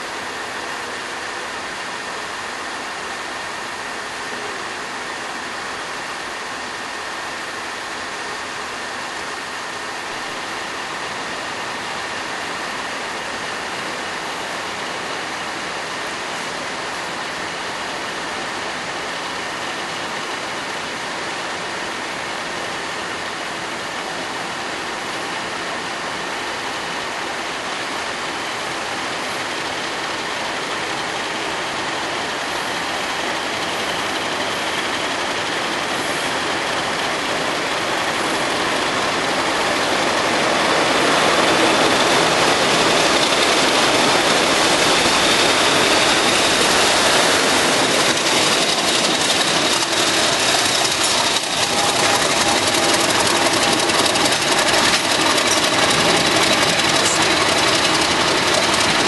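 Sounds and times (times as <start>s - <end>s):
diesel locomotive engine running: 0.0s - 59.0s
high steady whining tones: 25.1s - 59.0s.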